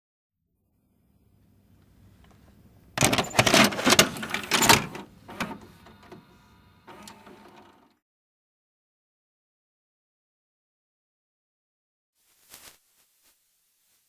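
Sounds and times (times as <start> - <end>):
mechanical clicks and clunks: 3.0 - 8.0.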